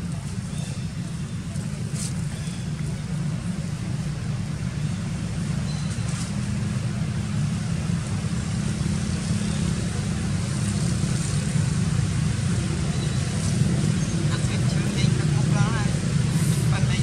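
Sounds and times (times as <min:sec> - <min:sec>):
low outdoor rumble: 0:00.0 - 0:17.0.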